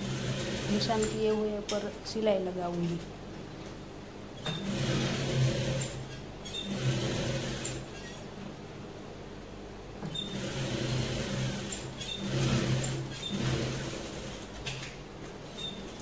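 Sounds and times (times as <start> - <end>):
electric sewing machine stitching: 0.0 - 1.5, 4.4 - 8.2, 10.1 - 14.9.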